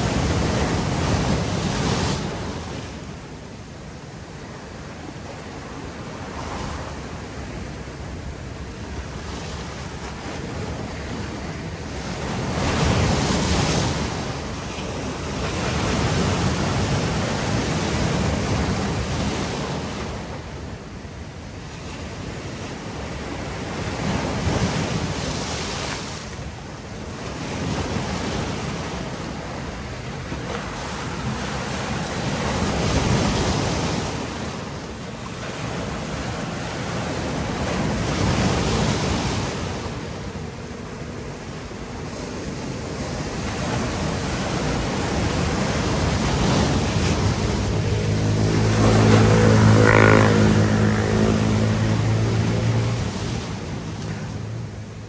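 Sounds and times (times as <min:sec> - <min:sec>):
sea waves breaking on rocks: 0:00.0 - 0:03.3, 0:04.2 - 0:21.0, 0:21.8 - 0:55.0.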